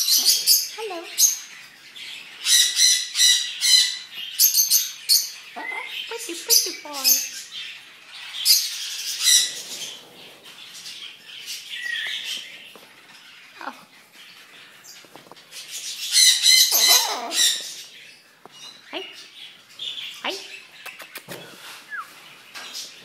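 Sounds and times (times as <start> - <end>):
parrots squawking and screeching: 0.0 - 18.4.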